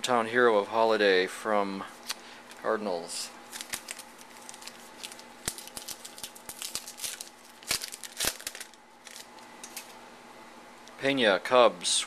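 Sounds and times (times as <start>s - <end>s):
sharp wrapper snaps: 3.5s - 9.9s
wrapper crinkling and tearing: 3.5s - 9.9s.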